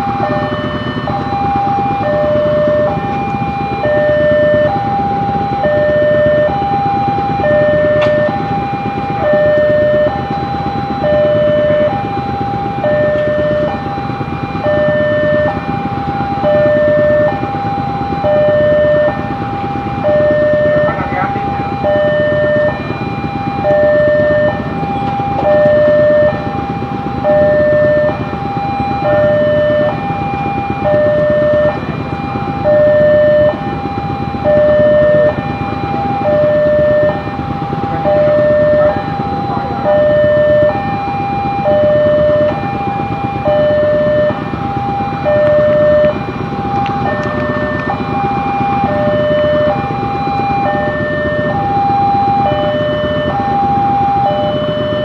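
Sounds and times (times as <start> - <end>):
level crossing alarm two-tone: 0.0 - 55.0
road noise: 18.2 - 31.0, 34.4 - 40.9, 45.2 - 52.5.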